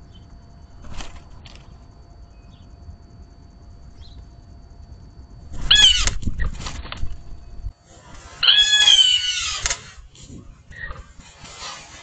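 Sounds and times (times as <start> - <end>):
blue jay jeer calls: 5.6 - 6.2, 8.4 - 10.0.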